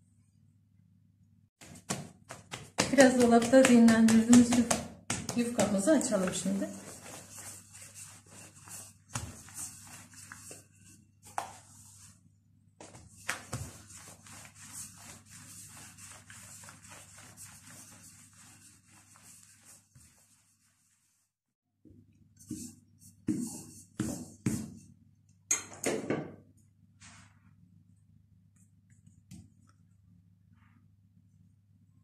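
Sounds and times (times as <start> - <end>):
rolling pin rolling dough: 1.6 - 12.2, 12.8 - 21.2.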